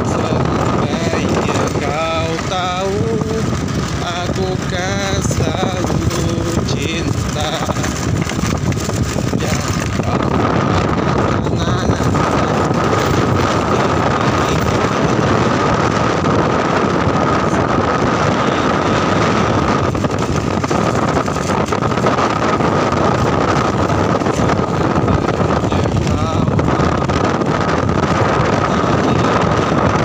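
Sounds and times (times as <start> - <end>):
motorcycle engine running: 0.0 - 30.0
steady whine: 0.0 - 30.0
wind noise on microphone: 0.0 - 30.0.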